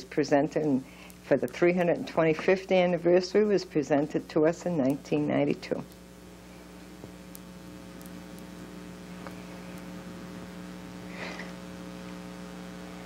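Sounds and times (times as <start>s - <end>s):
electrical hum: 0.0s - 13.0s
faint ticks: 7.0s - 8.5s.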